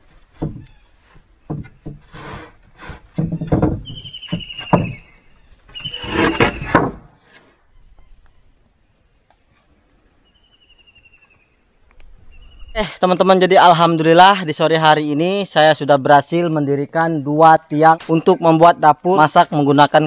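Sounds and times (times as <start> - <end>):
knocks and thuds on wooden posts: 0.0 - 7.2.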